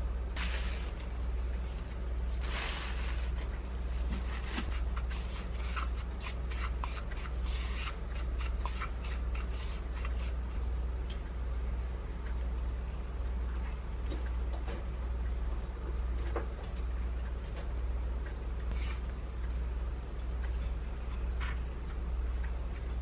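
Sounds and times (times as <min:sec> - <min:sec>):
fingers rubbing food in powder: 0:04.2 - 0:10.5
spoon stirring powder in a bowl: 0:04.6 - 0:10.5.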